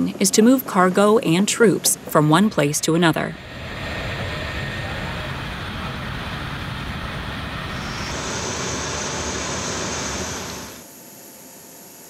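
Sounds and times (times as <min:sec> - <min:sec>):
jet engine noise: 0:00.0 - 0:10.9
high whine: 0:01.7 - 0:11.0.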